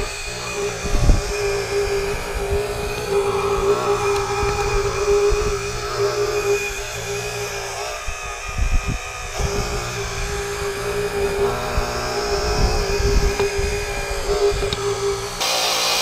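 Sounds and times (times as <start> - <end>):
hydraulic pump whining: 0.0 - 16.0.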